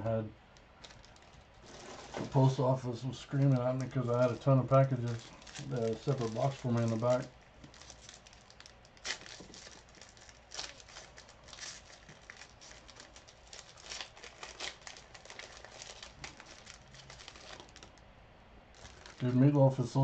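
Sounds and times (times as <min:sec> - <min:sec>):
wrappers crinkling: 0:00.6 - 0:18.1, 0:18.7 - 0:20.0
cards being handled: 0:03.3 - 0:08.1.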